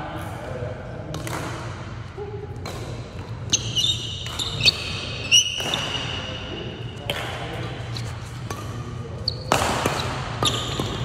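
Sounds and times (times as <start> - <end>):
rackets striking shuttlecock: 2.6 - 6.1, 8.3 - 11.0
shoes squeaking on gym floor: 3.5 - 7.1, 9.1 - 11.0.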